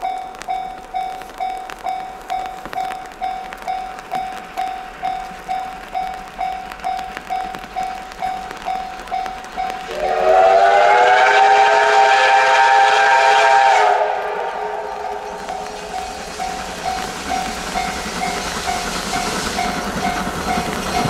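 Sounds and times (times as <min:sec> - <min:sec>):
steam locomotive whistle: 0:09.8 - 0:18.0.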